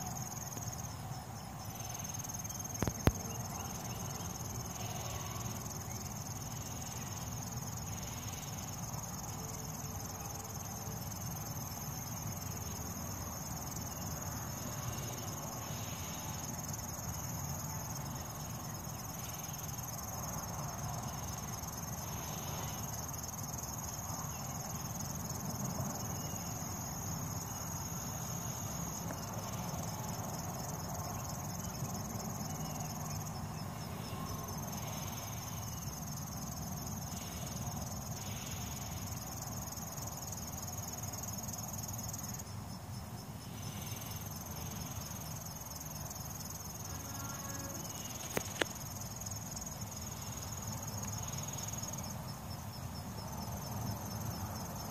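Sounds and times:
high-pitched insect trill: 0:00.0 - 0:54.9
low outdoor background hum: 0:00.0 - 0:54.9.

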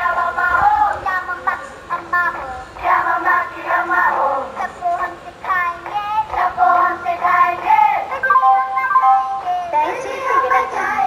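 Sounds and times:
high-pitched child-like singing: 0:00.0 - 0:11.0
music: 0:05.0 - 0:09.7
descending chime-like notes: 0:08.2 - 0:09.6.

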